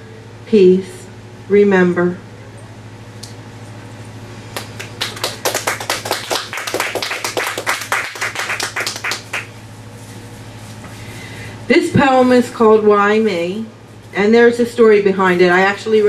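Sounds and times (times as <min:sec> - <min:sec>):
faint electrical hum: 0:00.0 - 0:16.0
audience applauding: 0:04.6 - 0:09.5.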